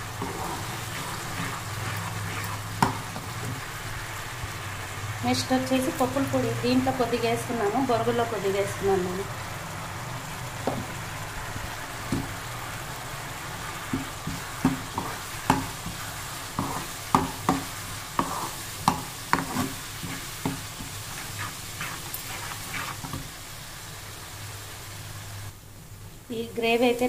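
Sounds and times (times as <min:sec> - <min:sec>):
metal spoon scraping a pan: 0:00.0 - 0:03.6, 0:14.0 - 0:23.3
steady sizzle: 0:00.0 - 0:27.0.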